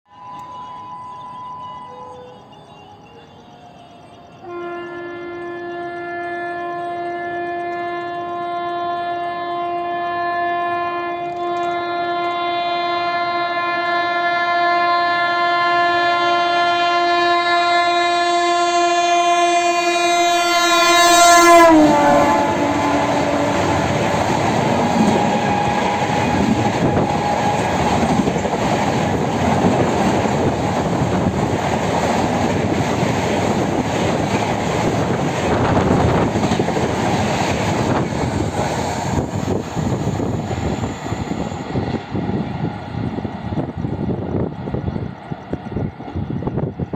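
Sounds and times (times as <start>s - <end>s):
train horn: 0.1s - 3.0s, 4.4s - 31.3s
train wheel clatter: 2.2s - 12.4s, 21.7s - 46.9s
train coaches rushing by: 20.4s - 46.9s.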